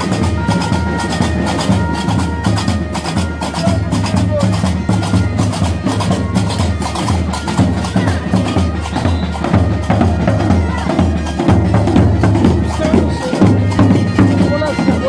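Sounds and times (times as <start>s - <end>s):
large drums struck with sticks: 0.0s - 15.0s.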